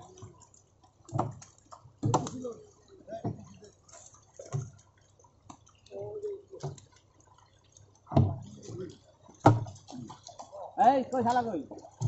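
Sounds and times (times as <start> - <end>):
fish splashing in water barrels: 0.0 - 12.0
voices: 5.8 - 6.8, 9.8 - 12.0.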